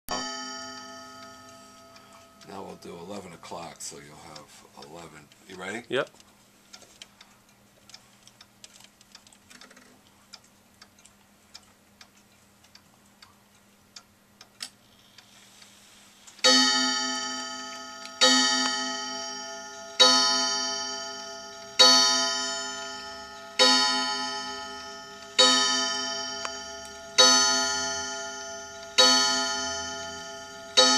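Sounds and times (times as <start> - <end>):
clock gong striking: 0.1 - 3.4, 16.4 - 30.9
clock hands clicking: 0.1 - 15.3, 16.4 - 30.9
clock ticking: 0.1 - 15.7, 16.4 - 30.9.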